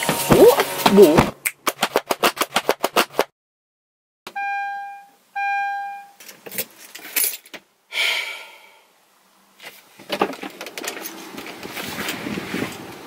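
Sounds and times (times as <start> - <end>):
book pages flicking: 0.1 - 3.3
long electronic beeps: 4.3 - 6.2.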